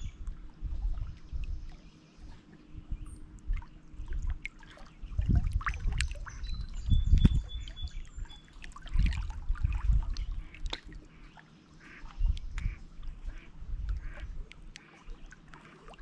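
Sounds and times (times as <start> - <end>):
birds chirping: 1.4 - 9.0, 10.2 - 15.9
waves lapping against rocks: 8.2 - 16.0.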